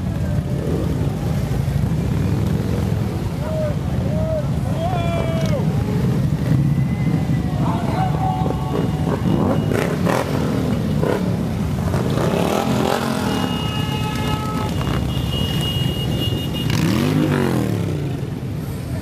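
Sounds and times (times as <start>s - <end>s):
motorcycles riding past slowly: 0.0s - 19.0s
motorcycle engine revving: 8.4s - 13.8s, 16.5s - 18.4s.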